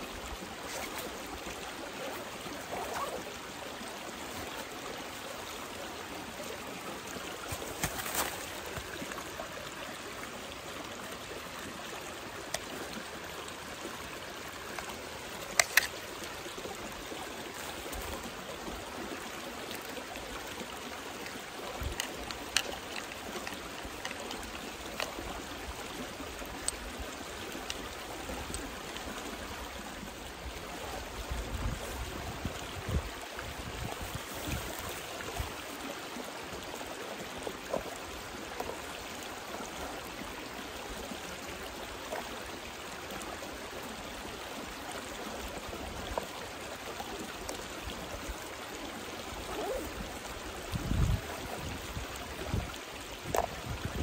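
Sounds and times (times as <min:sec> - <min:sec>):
mountain stream rushing: 0:00.0 - 0:54.0
gear clicking and rustling: 0:21.8 - 0:25.2.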